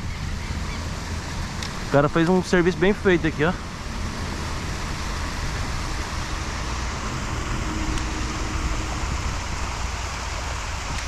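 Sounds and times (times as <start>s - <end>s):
river water rushing: 0.6s - 11.0s
low rumble: 3.0s - 11.0s.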